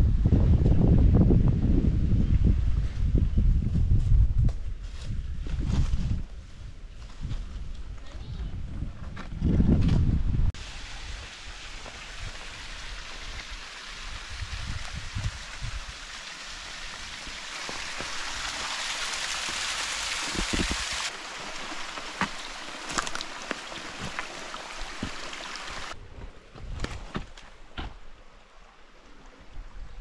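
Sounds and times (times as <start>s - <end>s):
water hissing: 10.6s - 26.0s
water drips and clicks: 21.6s - 25.9s.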